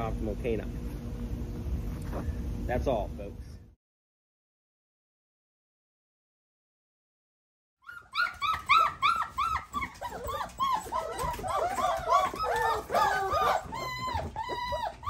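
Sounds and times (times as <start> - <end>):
puppies whining: 7.8 - 15.0.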